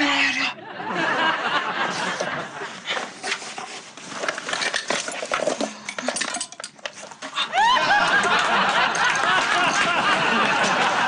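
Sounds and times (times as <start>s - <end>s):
clothes rustling: 1.5s - 7.4s
plastic bottles clicking and knocking: 3.2s - 7.4s.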